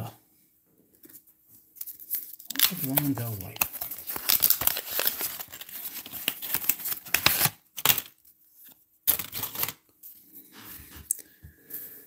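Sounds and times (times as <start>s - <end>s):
cards and wax paper rustling: 1.0s - 11.0s.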